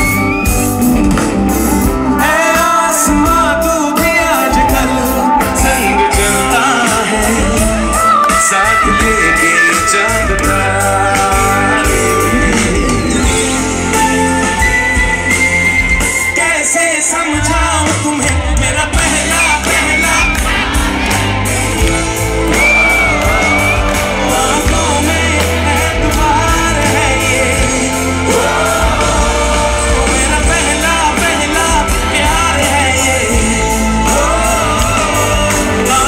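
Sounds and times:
live pop-rock band playing: 0:00.0 - 0:36.0
person singing into a microphone: 0:02.1 - 0:21.0, 0:22.5 - 0:36.0
crowd shouting: 0:16.4 - 0:36.0.

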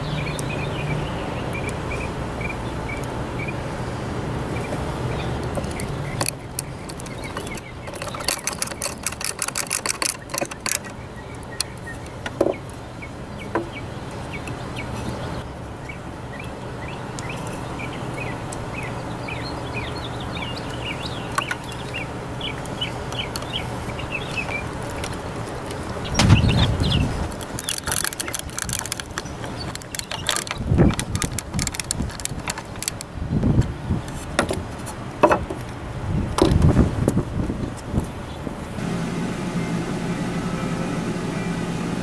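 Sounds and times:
birds chirping: 0:00.0 - 0:35.8, 0:38.0 - 0:42.0
sharp clicks: 0:05.4 - 0:11.9, 0:24.3 - 0:33.7
steady low hum: 0:38.7 - 0:42.0.

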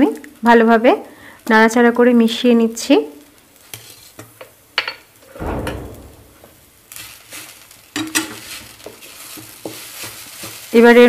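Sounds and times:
soft sizzling hiss: 0:00.0 - 0:11.0
wooden spatula scraping a pan: 0:03.6 - 0:04.4, 0:06.9 - 0:11.0
thud: 0:05.3 - 0:06.8.

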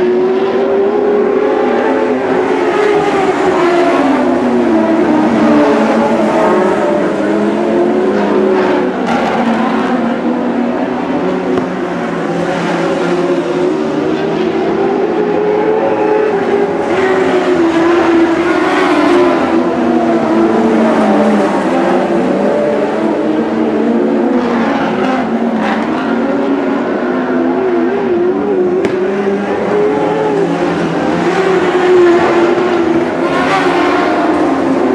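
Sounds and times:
sprint car engines racing: 0:00.0 - 0:34.9.

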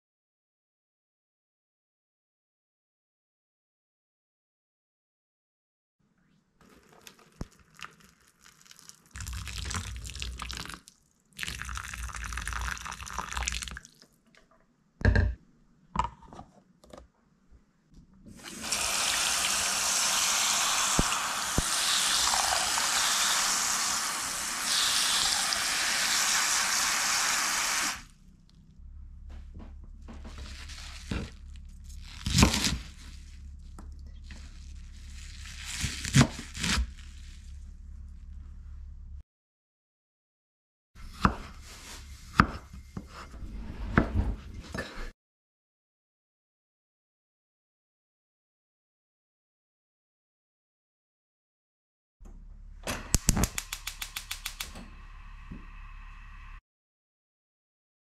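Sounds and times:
hot water pouring into plastic: 0:06.6 - 0:14.0, 0:18.4 - 0:28.1.

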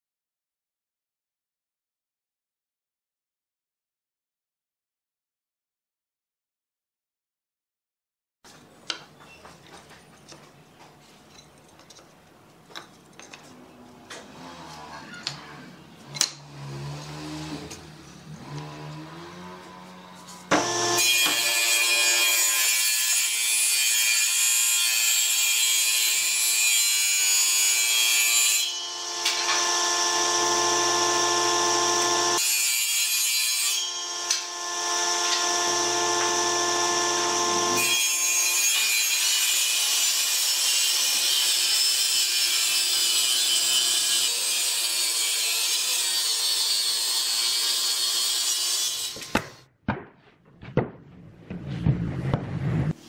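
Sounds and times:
power saw motor whine: 0:16.1 - 0:21.8, 0:28.7 - 0:32.4, 0:33.8 - 0:37.9.

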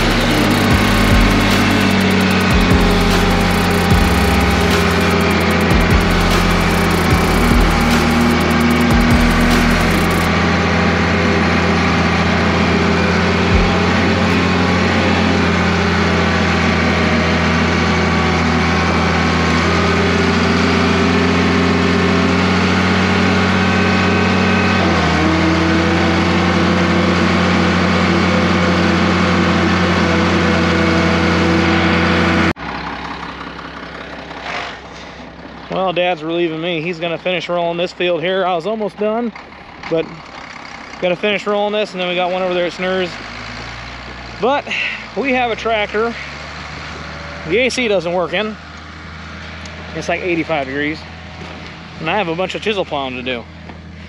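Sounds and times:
tractor engine running: 0:00.0 - 0:34.4, 0:38.1 - 0:44.6.

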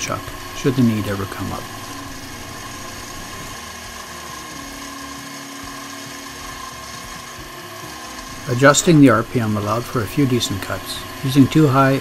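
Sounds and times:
lower hum: 0:00.0 - 0:05.0
lathe motor whine: 0:00.0 - 0:12.0.

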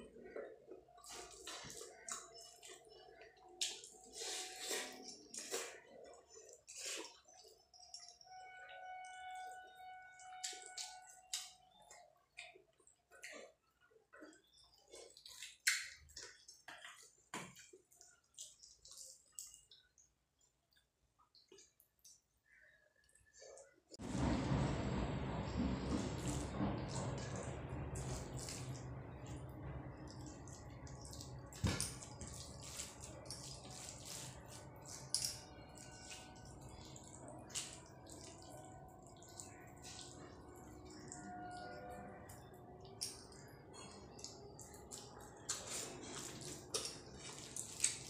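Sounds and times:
wet chewing sounds: 0:00.1 - 0:08.3, 0:10.4 - 0:23.8, 0:29.9 - 0:41.2, 0:42.2 - 0:48.0
fingers squelching wet rice: 0:30.0 - 0:41.8, 0:43.2 - 0:48.0
fingers squishing chicken in gravy: 0:43.3 - 0:48.0.

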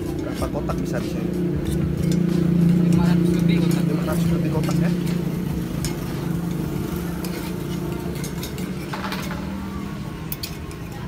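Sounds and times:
vehicle engine humming: 0:00.0 - 0:11.0
metal utensil clinking on molds: 0:07.2 - 0:09.6.

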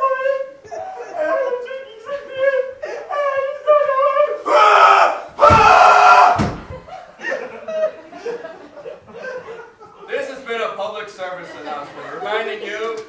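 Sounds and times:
person wailing: 0:00.0 - 0:06.6
person screaming: 0:04.4 - 0:06.6.

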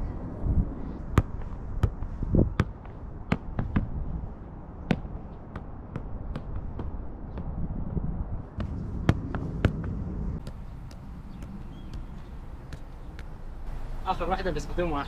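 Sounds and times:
low rumble: 0:00.0 - 0:02.6, 0:07.4 - 0:14.0
football being kicked: 0:01.2 - 0:04.0, 0:04.8 - 0:13.3.

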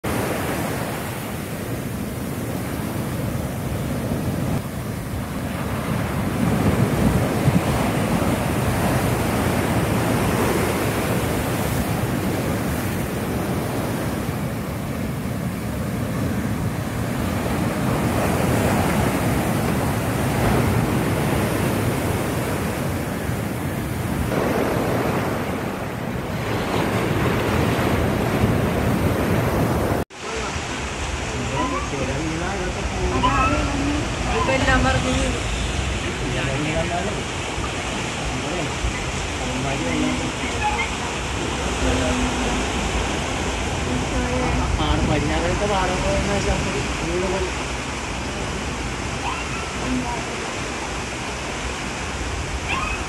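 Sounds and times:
surf breaking on beach: 0:00.0 - 0:53.0
wind buffeting microphone: 0:00.2 - 0:30.0.

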